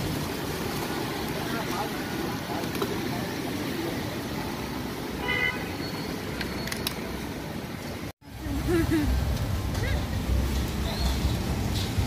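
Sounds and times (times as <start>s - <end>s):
street traffic noise: 0.0s - 12.0s
vehicle horn toot: 5.2s - 5.9s.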